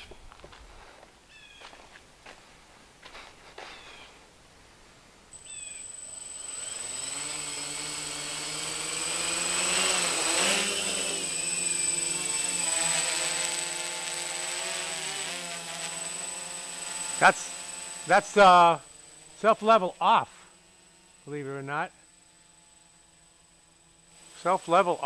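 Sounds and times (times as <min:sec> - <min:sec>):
quadcopter propellers buzzing: 0:03.0 - 0:04.2, 0:05.3 - 0:25.0
high thin motor whine: 0:05.3 - 0:25.0.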